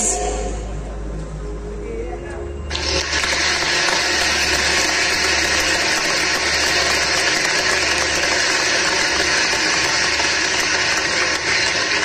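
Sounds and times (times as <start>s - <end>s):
audience clapping and cheering: 2.7s - 12.0s.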